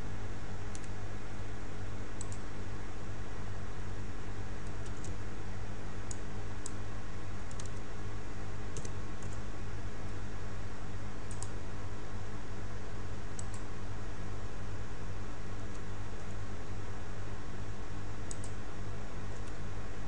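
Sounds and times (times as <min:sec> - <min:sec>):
low electrical hum: 0:00.0 - 0:20.0
keyboard and mouse clicks: 0:00.7 - 0:01.0, 0:02.2 - 0:02.4, 0:04.6 - 0:05.2, 0:07.5 - 0:07.8, 0:08.8 - 0:09.4, 0:11.3 - 0:11.6, 0:18.3 - 0:18.6.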